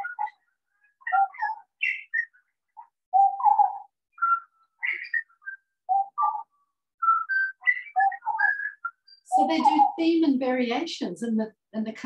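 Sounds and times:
birds singing a duet: 0.0 - 11.4.

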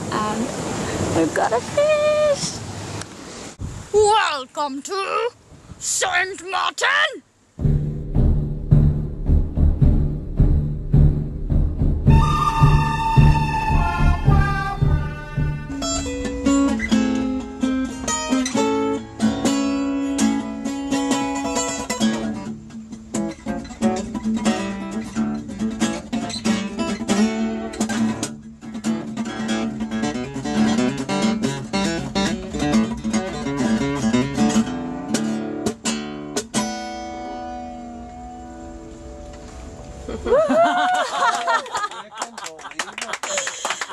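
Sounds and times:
acoustic guitar picking and strumming: 7.6 - 40.2.

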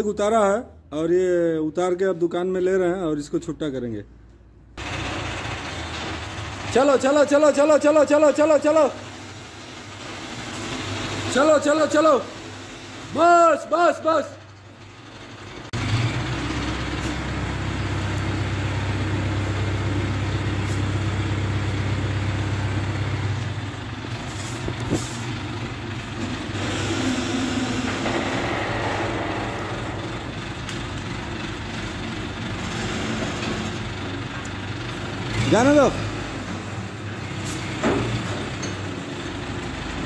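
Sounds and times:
diesel engine running under load: 4.8 - 40.0
engine knocks: 14.4 - 35.4, 37.8 - 39.8.

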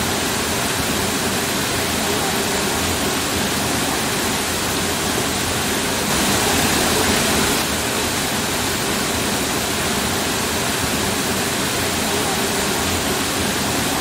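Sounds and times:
waterfall pouring into pool: 0.0 - 14.0.

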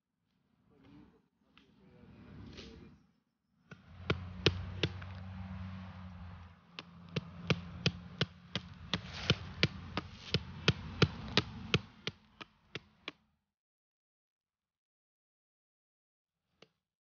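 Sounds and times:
blade chopping: 3.7 - 13.2
steady low hum: 3.8 - 12.8.

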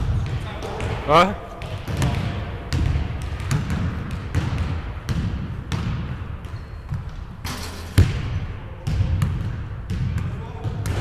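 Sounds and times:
basketball bouncing on hardwood floor: 1.6 - 7.2, 8.0 - 11.0
basketball hitting hoop: 1.6 - 11.0.

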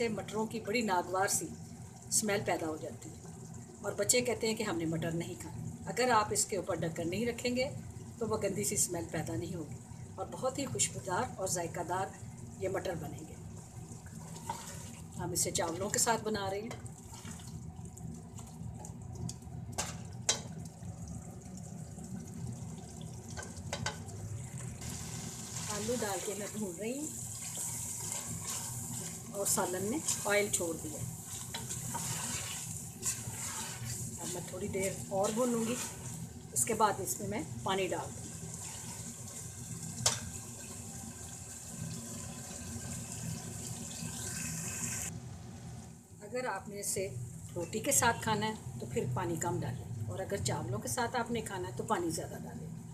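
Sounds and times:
curry bubbling in a pot: 11.8 - 45.1
wooden spoon stirring: 27.4 - 36.3.

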